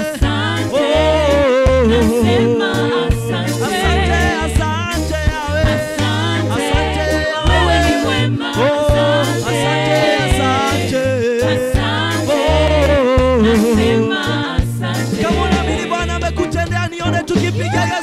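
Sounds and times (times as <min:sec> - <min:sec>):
bass guitar line: 0:00.0 - 0:18.0
keyboard: 0:00.0 - 0:18.0
voices singing: 0:00.0 - 0:18.0
drums: 0:17.2 - 0:18.0.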